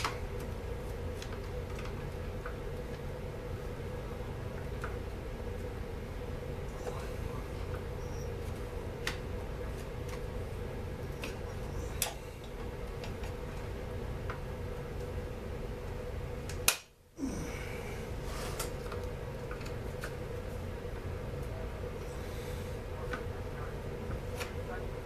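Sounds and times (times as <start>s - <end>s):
steady hum: 0.0s - 25.0s.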